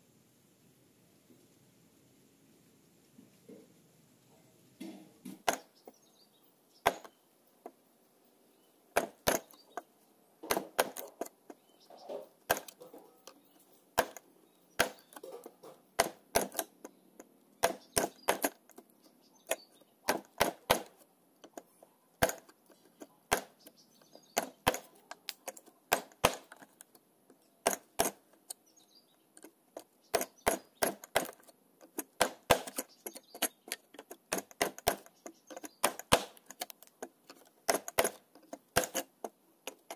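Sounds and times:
chisel knocking into wood: 0:06.8 - 0:07.1, 0:09.0 - 0:09.6, 0:10.4 - 0:11.2, 0:12.5 - 0:12.8, 0:14.0 - 0:14.2, 0:14.8 - 0:16.7, 0:17.6 - 0:18.6, 0:20.1 - 0:20.9, 0:25.9 - 0:26.6, 0:30.1 - 0:31.4, 0:32.0 - 0:33.5, 0:34.3 - 0:36.4, 0:37.7 - 0:39.1.

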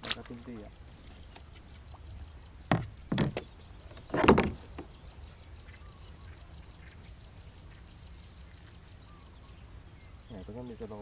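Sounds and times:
gear knocking in kayak: 0:02.7 - 0:05.0.

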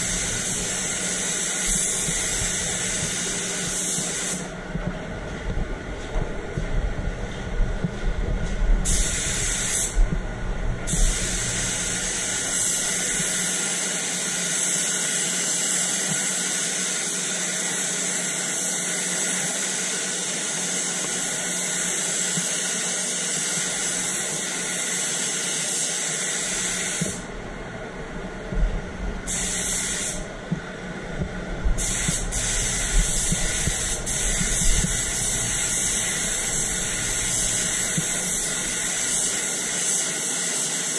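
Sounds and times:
air spray gun hissing: 0:00.0 - 0:04.6, 0:08.8 - 0:10.0, 0:10.9 - 0:27.3, 0:29.2 - 0:30.3, 0:31.8 - 0:40.9
steady booth hum: 0:00.0 - 0:14.5, 0:26.4 - 0:40.0.

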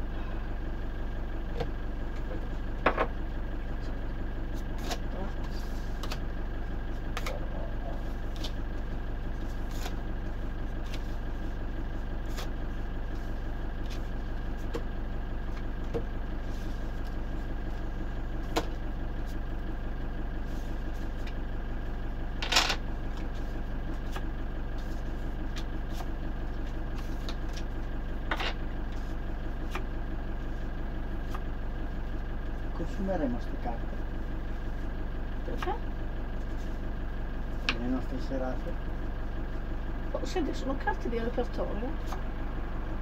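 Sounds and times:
steady low hum: 0:00.0 - 0:43.0
playing cards clicking and slapping: 0:06.0 - 0:06.2.

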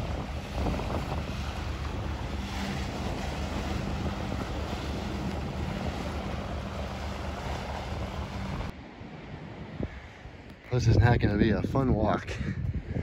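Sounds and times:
surf breaking: 0:00.0 - 0:08.7
outboard motor droning: 0:00.0 - 0:08.8
wind buffeting microphone: 0:00.0 - 0:13.0.

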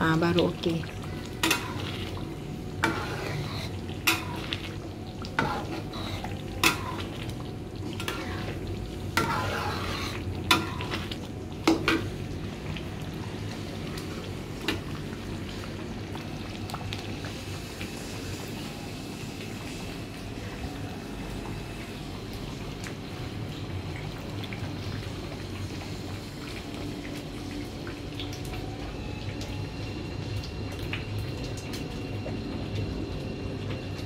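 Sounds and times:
chili paste sizzling: 0:00.0 - 0:27.8
metal spatula scraping wok: 0:01.4 - 0:02.0, 0:02.8 - 0:04.5, 0:05.4 - 0:07.1, 0:08.0 - 0:11.0.

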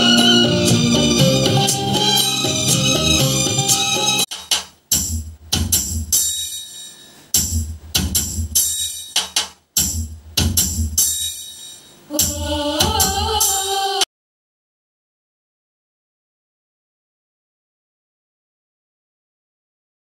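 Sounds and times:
bass-heavy song over speaker: 0:00.0 - 0:04.3
person singing: 0:12.1 - 0:14.1.

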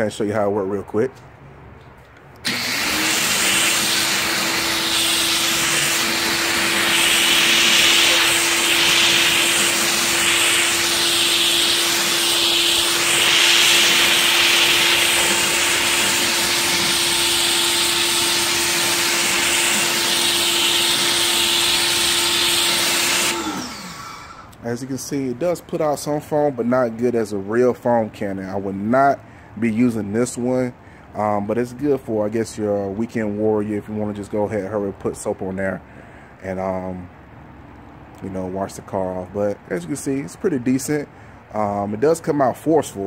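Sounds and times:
pressure washer motor humming: 0:02.4 - 0:24.6
water spray hissing: 0:03.5 - 0:18.0.

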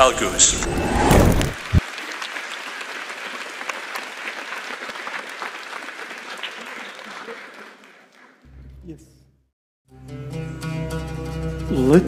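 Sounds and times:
short low thump: 0:00.5 - 0:01.8
audience applauding: 0:01.6 - 0:08.5.

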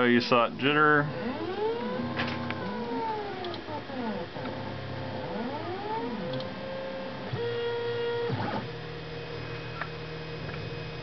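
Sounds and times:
stepper motors whining: 0:00.9 - 0:11.0.

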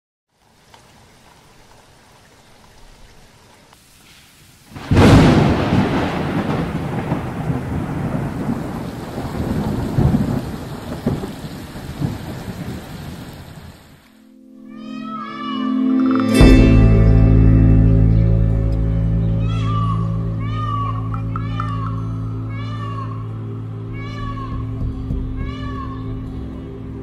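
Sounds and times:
heavy rain: 0:00.3 - 0:14.3
thunderclap rumbling: 0:04.7 - 0:14.0.

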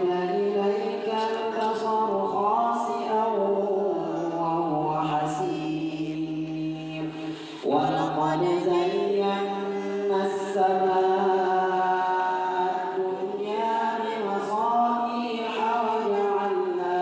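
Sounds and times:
man chanting into a microphone: 0:00.0 - 0:17.0.

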